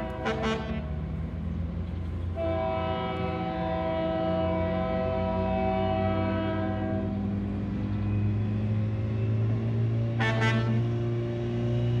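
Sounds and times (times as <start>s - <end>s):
multi-note train horn: 0.0s - 1.0s, 2.3s - 7.3s, 10.1s - 11.0s
diesel engine droning: 0.0s - 12.0s.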